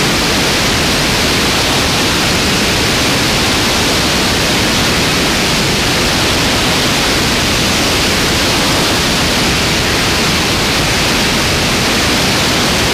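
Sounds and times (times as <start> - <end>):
wind rushing over camera: 0.0 - 12.9.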